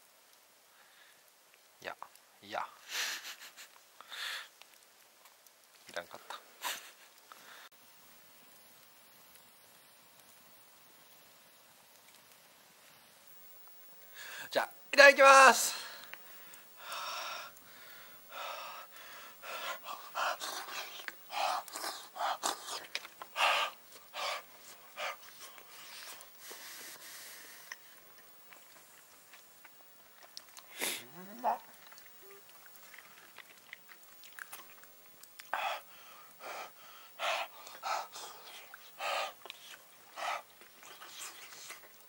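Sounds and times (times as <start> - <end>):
slurping and chewing food: 18.9 - 42.0.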